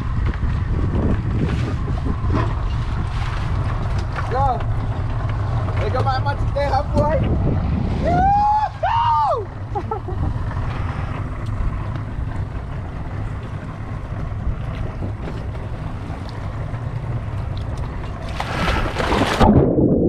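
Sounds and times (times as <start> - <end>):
wind buffeting microphone: 0.0 - 20.0
water washing against boat hull: 9.6 - 19.8.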